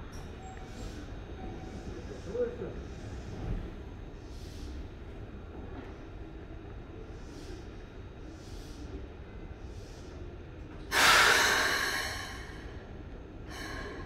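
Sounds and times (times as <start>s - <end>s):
compressed air hissing: 10.9s - 12.7s.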